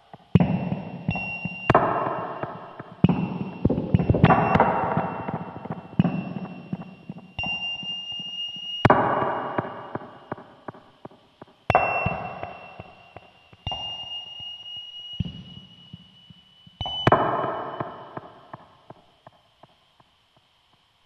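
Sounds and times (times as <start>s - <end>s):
abrupt noisy electronic hits: 0.4s - 7.0s
steady high tone: 0.6s - 8.9s.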